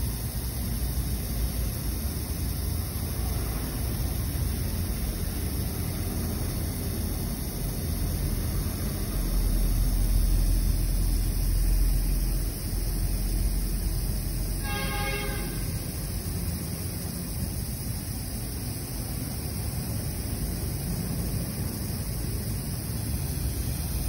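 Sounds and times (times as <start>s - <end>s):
aerosol spray hissing: 0.0s - 24.0s
short pitched toot: 14.6s - 15.8s.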